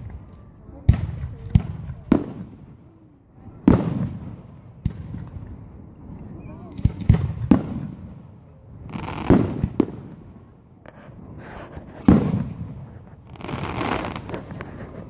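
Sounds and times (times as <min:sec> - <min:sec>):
firework crackling: 0:03.6 - 0:15.0.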